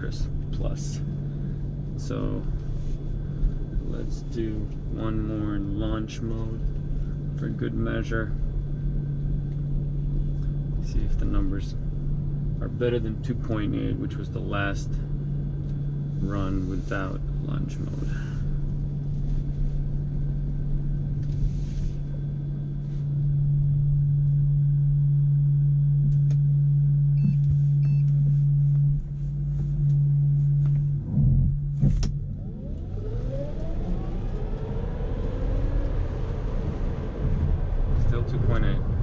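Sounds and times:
steady low hum in car cabin: 0.0s - 39.0s
electric motor whine rising: 27.1s - 39.0s.

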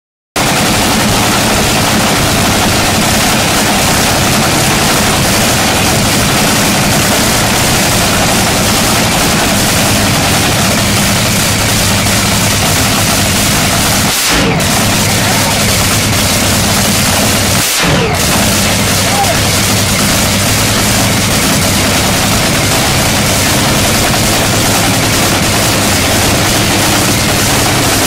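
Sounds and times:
loud dragster engine running: 0.4s - 28.0s.

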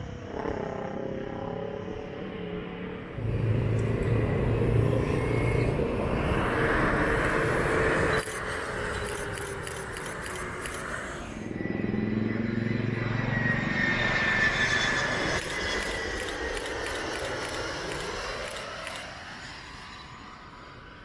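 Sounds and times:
jet passing low: 2.3s - 21.0s.

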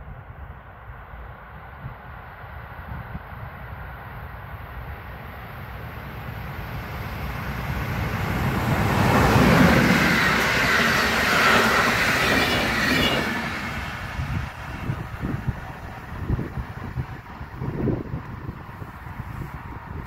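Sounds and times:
diesel locomotive engine: 0.2s - 20.0s
train coaches passing: 4.5s - 19.9s.

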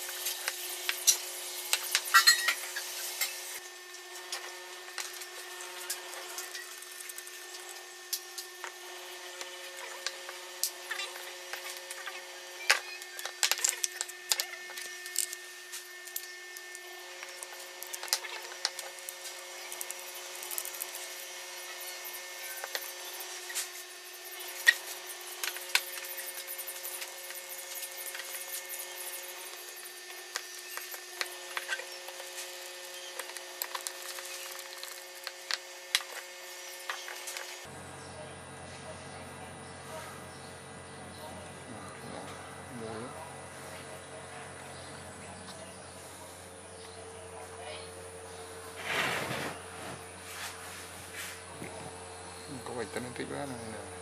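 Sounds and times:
screwdriver at work: 4.2s - 37.6s.

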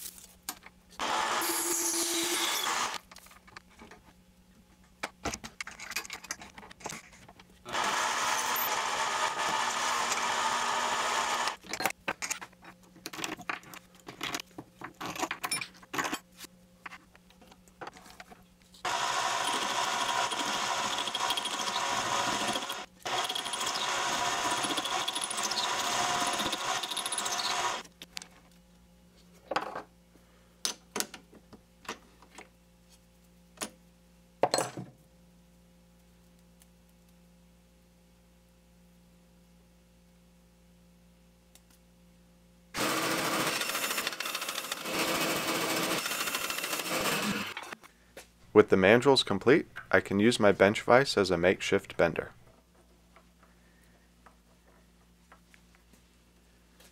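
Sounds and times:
lathe cutting plastic: 1.0s - 3.0s, 7.7s - 11.6s, 18.9s - 27.8s, 42.8s - 47.8s.

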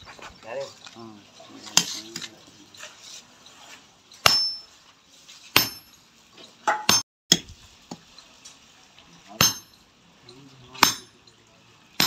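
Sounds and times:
hammer striking chisel: 4.2s - 4.7s, 5.5s - 6.0s, 6.7s - 7.4s, 9.4s - 9.8s, 10.8s - 11.2s.

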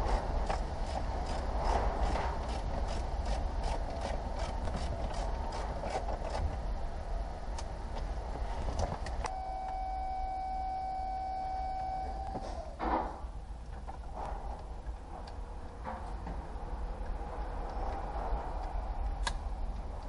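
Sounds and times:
steady beep-like tone: 9.3s - 12.8s.

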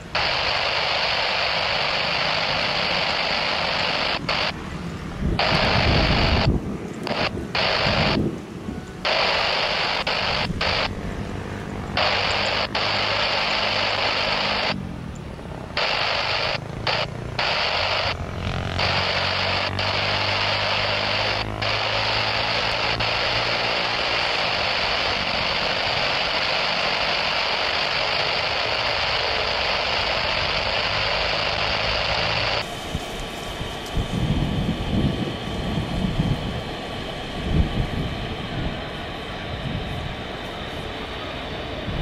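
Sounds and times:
radio squelch opening: 0.0s - 4.6s, 5.4s - 8.2s, 9.0s - 10.9s, 11.9s - 14.8s, 15.8s - 32.7s
radio static hiss: 0.0s - 42.0s.

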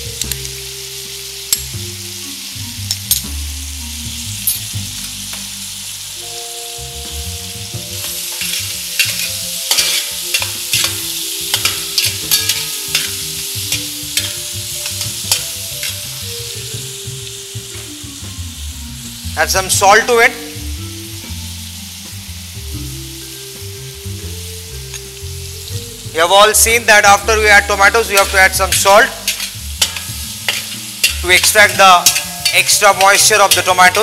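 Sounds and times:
prawns sizzling in hot oil: 0.0s - 34.0s
metal spatula scraping pan: 8.0s - 16.2s, 28.2s - 34.0s.

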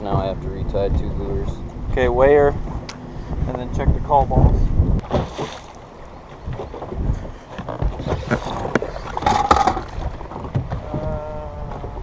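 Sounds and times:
water lapping against boat hull: 0.0s - 12.0s
knocks and clatter on deck: 7.6s - 11.1s.

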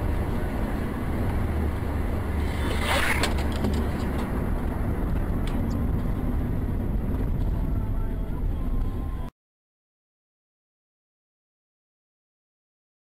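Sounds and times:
car road and engine rumble: 0.0s - 9.3s.

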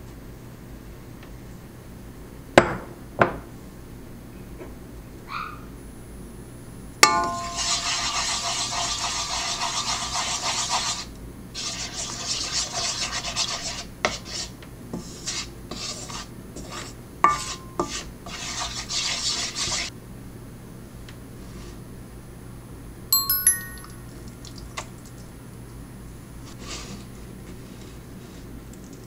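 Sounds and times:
bowl ringing: 7.0s - 7.6s, 23.2s - 24.4s
spoon knocking bowl: 7.0s - 7.6s
wooden spoon scraping bowl: 7.3s - 11.0s, 11.6s - 19.9s.

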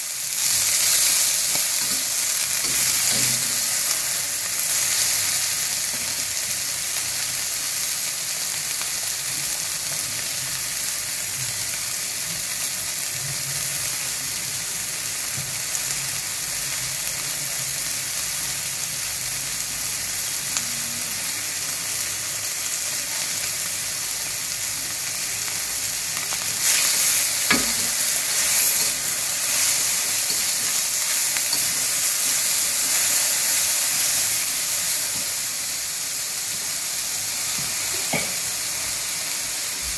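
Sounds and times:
food sizzling in a wok: 0.0s - 39.9s
metal spatula scraping wok: 0.4s - 3.9s, 26.6s - 32.5s.

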